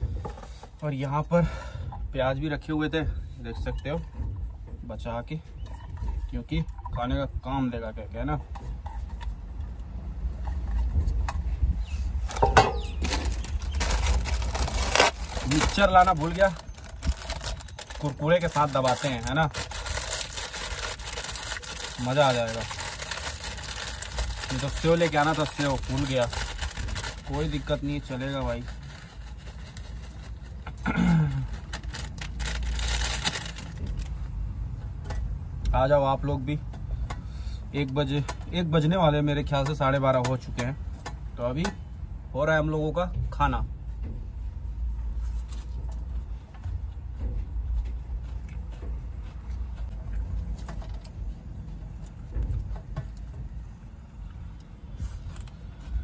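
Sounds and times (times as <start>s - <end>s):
plastic snack packet crinkling: 12.3s - 30.5s, 31.3s - 34.1s.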